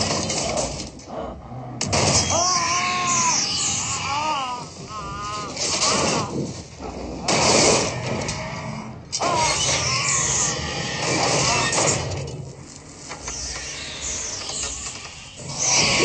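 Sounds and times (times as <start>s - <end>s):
voice-like cries: 2.2s - 6.3s.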